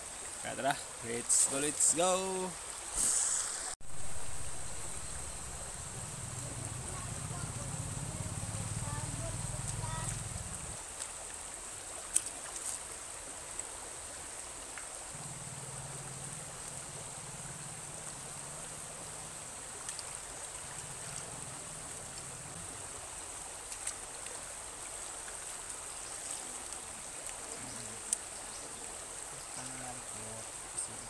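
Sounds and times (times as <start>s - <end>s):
water running: 0.0s - 11.4s, 15.1s - 31.0s
faint low hum: 3.9s - 10.8s.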